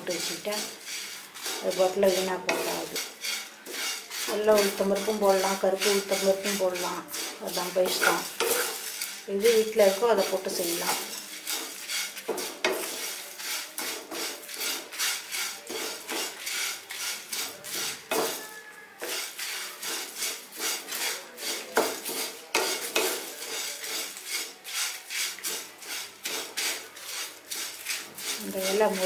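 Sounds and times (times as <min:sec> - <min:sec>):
spatula scraping in a dry pan: 0:00.0 - 0:29.0.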